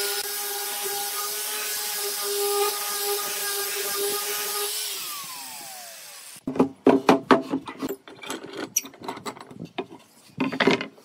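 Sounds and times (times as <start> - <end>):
angle grinder spinning down: 0.0 - 6.4
pipe clamps clicking and knocking: 6.5 - 11.0.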